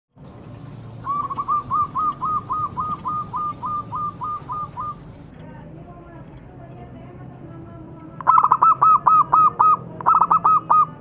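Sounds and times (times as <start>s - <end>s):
dove cooing: 0.7s - 5.1s, 8.2s - 11.0s.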